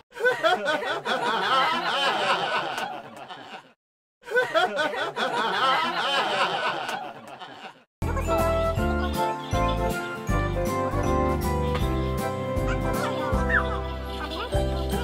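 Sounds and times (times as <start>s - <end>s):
laughter sound effect: 0.2s - 8.2s, 12.9s - 15.0s.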